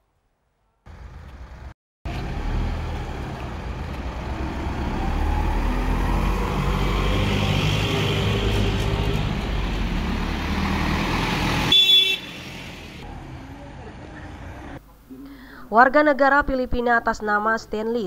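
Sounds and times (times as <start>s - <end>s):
truck engines running: 0.9s - 14.8s
horn toot: 11.7s - 12.7s.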